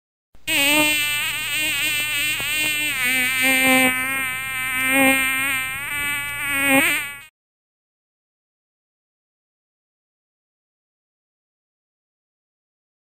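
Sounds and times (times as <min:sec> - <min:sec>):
insect wings buzzing: 0:00.5 - 0:07.3.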